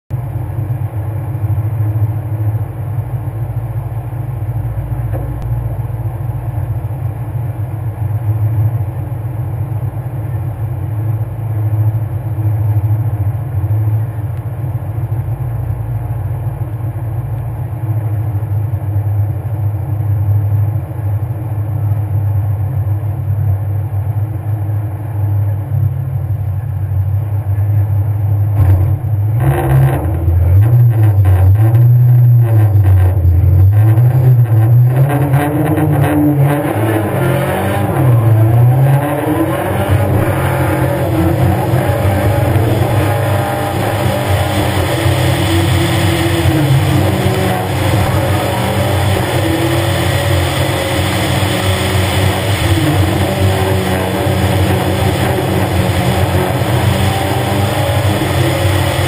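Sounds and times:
car engine idling: 0:00.1 - 0:59.0.

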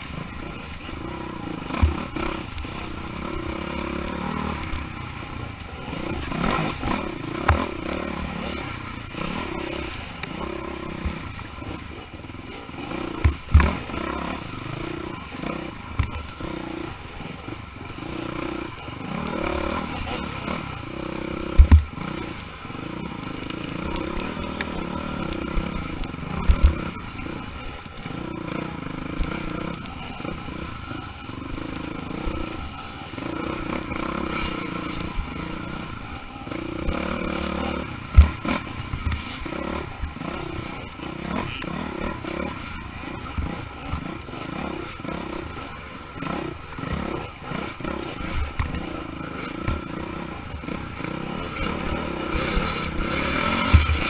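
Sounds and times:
motorcycle engine revving: 0:00.0 - 0:54.0
sharp knocks from bumps: 0:21.6 - 0:21.9, 0:38.1 - 0:39.3.

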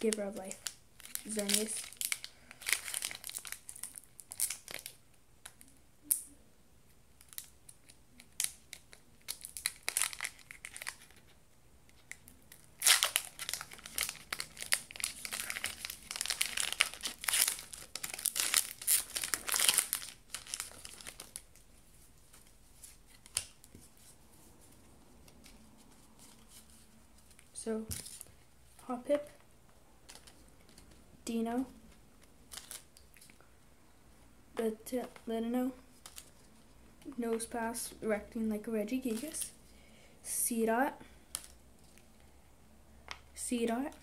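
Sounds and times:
foil wrapper crinkling and tearing: 0:00.0 - 0:05.6, 0:07.2 - 0:11.3, 0:12.0 - 0:21.6, 0:32.5 - 0:32.9.

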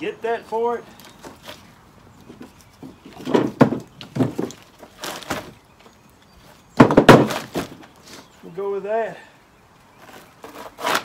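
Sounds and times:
firewood knocking together: 0:02.2 - 0:05.6, 0:06.8 - 0:07.9.

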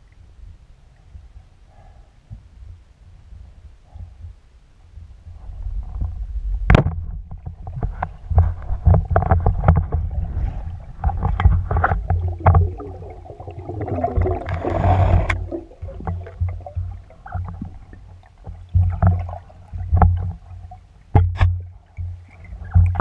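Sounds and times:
underwater water rumbling: 0:05.3 - 0:23.0
splashing and bubbling: 0:07.4 - 0:23.0.

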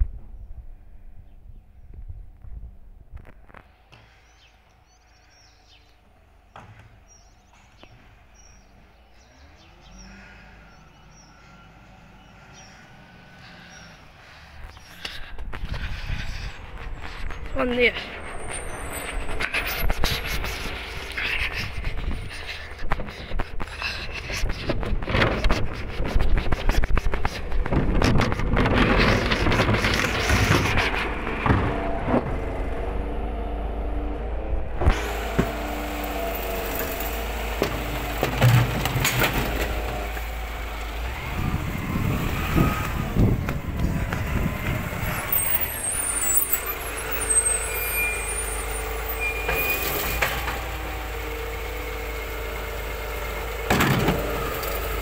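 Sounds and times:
low background rumble: 0:00.0 - 0:47.9
truck engine and hydraulic hum: 0:03.1 - 0:55.0
small birds chirping: 0:03.6 - 0:24.7.

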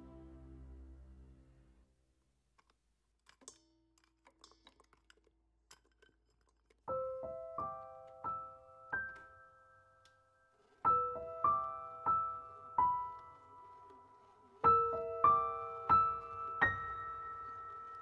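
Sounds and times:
slow piano music: 0:00.0 - 0:01.8, 0:06.9 - 0:18.0.

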